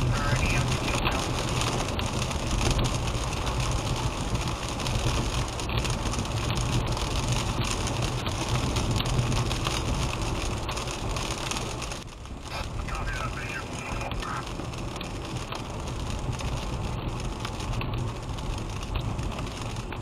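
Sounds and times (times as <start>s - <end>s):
rain on windshield: 0.0s - 20.0s
road drone: 0.0s - 20.0s.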